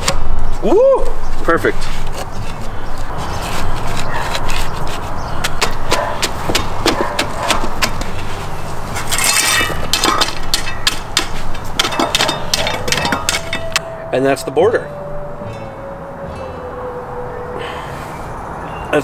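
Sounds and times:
rake tines scraping rocky soil: 8.2 - 10.2.

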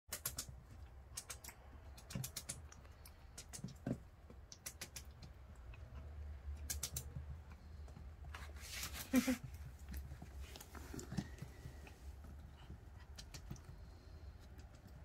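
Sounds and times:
puppy claws clicking on hardwood: 0.1 - 6.0, 6.6 - 7.7.

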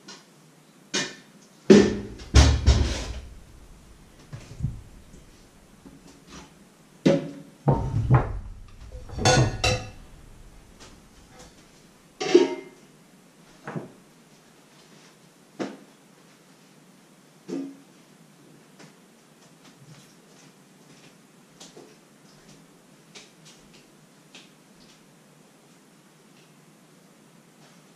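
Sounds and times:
metal pots and pans clanking: 1.7 - 5.4, 7.7 - 11.6, 12.2 - 12.8.

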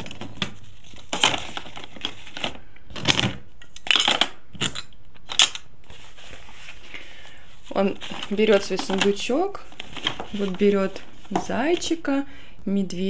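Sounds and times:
plastic toys clicking and clattering: 1.1 - 5.7.

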